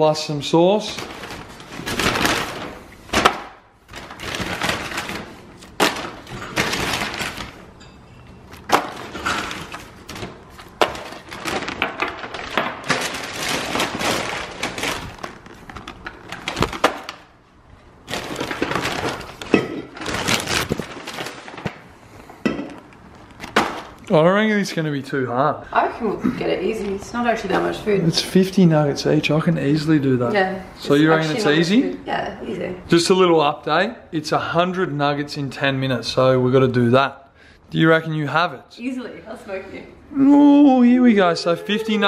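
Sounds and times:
paper bag rustling: 0.7 - 7.8, 8.4 - 17.3, 17.9 - 21.9, 23.0 - 24.0.

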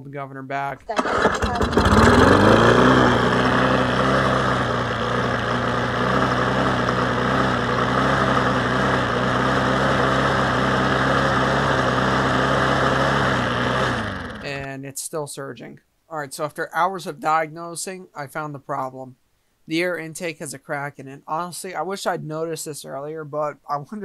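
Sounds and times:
lawn mower engine running: 0.9 - 14.7.

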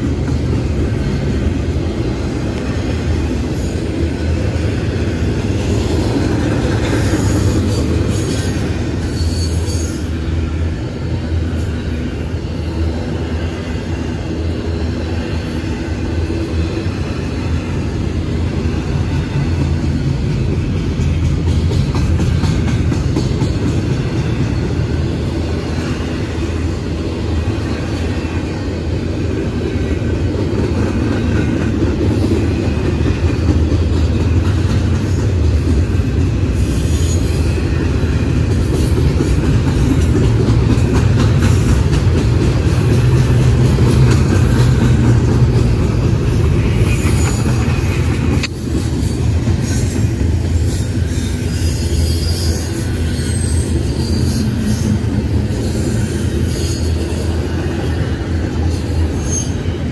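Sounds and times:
train wheels rumbling on rail: 0.0 - 59.9
wheel squeals: 49.6 - 55.1.

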